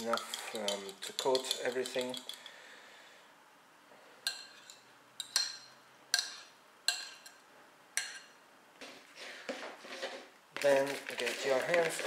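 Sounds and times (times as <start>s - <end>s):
metal fork clinking on ceramic bowl: 0.0s - 2.4s.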